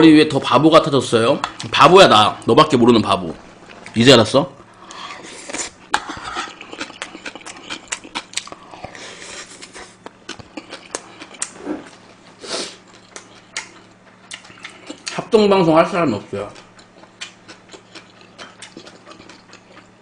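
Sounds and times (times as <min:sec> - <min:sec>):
close chewing of food: 0:04.8 - 0:20.0.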